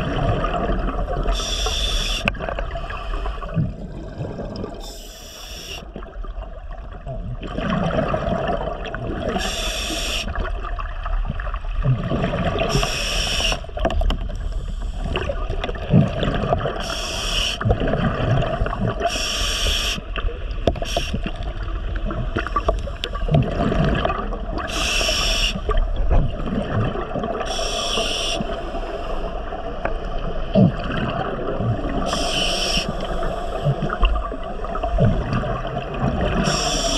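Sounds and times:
exhaled bubbles rushing: 0:00.0 - 0:01.6, 0:02.2 - 0:05.0, 0:05.9 - 0:14.0, 0:15.0 - 0:19.1, 0:20.2 - 0:27.6, 0:29.3 - 0:36.9
low underwater rumble: 0:02.2 - 0:05.0, 0:28.5 - 0:36.9.

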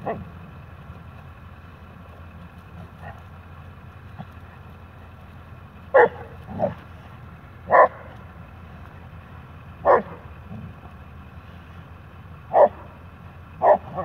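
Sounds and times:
dogs barking: 0:00.0 - 0:00.4, 0:02.7 - 0:03.4, 0:05.8 - 0:07.0, 0:07.6 - 0:08.5, 0:09.6 - 0:10.8, 0:12.4 - 0:14.0.

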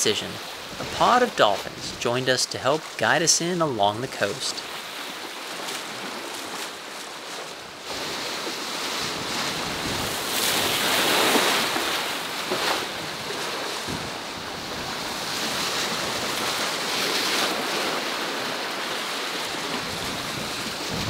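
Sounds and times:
sea water splashing along hull: 0:00.0 - 0:21.0
wind buffeting microphone: 0:00.6 - 0:02.1, 0:08.9 - 0:17.0, 0:19.5 - 0:21.0.

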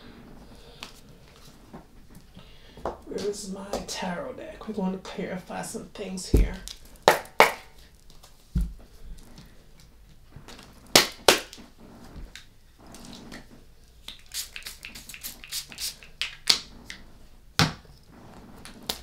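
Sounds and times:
cards flicking and slapping: 0:10.5 - 0:11.6, 0:14.0 - 0:17.0.

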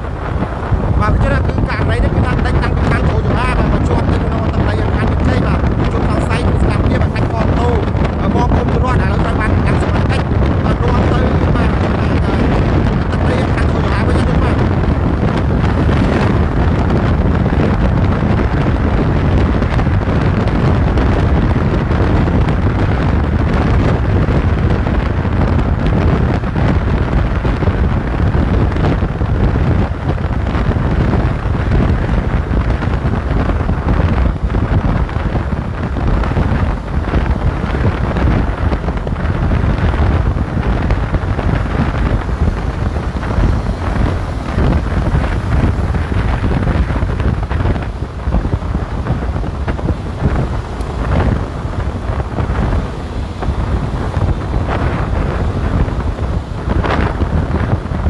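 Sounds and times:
motorcycle running: 0:00.0 - 0:58.0
wind rumble on microphone: 0:00.0 - 0:58.0.

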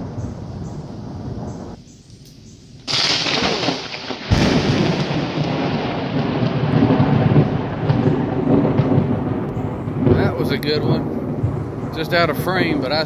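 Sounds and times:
thunder rumbling: 0:00.0 - 0:01.8, 0:02.8 - 0:13.0
thunder cracks: 0:02.9 - 0:13.0.

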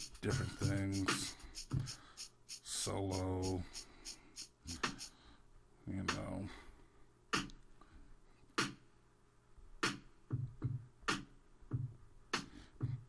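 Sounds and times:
drum machine snare hits: 0:00.0 - 0:05.1, 0:08.6 - 0:08.8, 0:09.8 - 0:13.0
kick drums: 0:00.2 - 0:02.0, 0:10.3 - 0:10.9, 0:11.7 - 0:12.0.

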